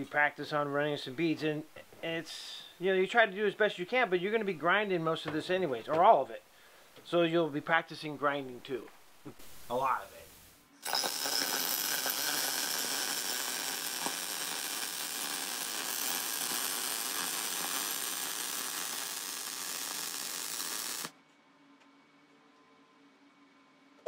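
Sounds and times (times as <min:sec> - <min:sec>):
welding arc sizzling hiss: 0:09.3 - 0:21.1.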